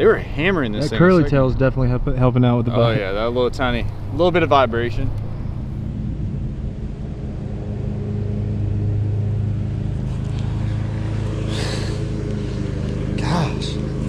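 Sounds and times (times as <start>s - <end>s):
lawn mower engine running: 7.0s - 14.0s.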